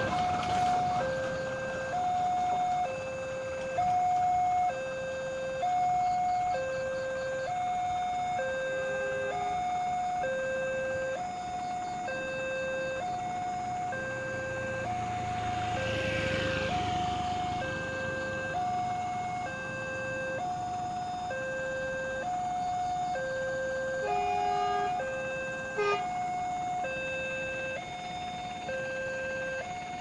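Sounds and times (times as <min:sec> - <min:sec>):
motor vehicle passing: 0:00.0 - 0:05.9, 0:12.7 - 0:21.0
level-crossing warning signal: 0:00.0 - 0:30.0.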